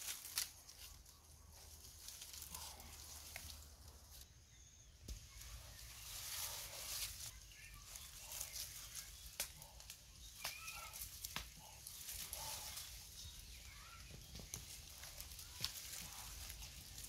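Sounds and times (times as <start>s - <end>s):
faint rustling: 5.1s - 17.0s.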